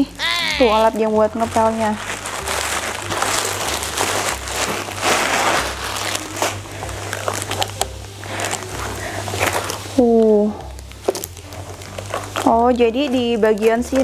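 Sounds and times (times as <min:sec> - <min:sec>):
plastic wrap crinkling: 0:00.0 - 0:14.0.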